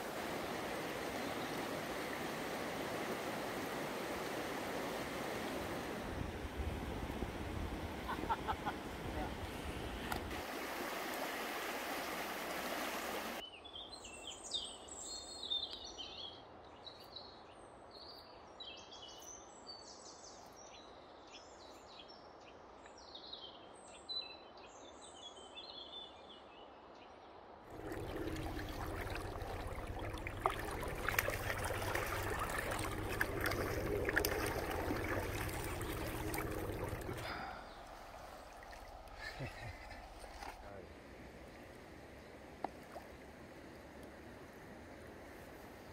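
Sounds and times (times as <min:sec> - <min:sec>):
rushing river water: 0:00.0 - 0:13.4, 0:27.7 - 0:45.9
songbirds chirping: 0:13.4 - 0:45.9.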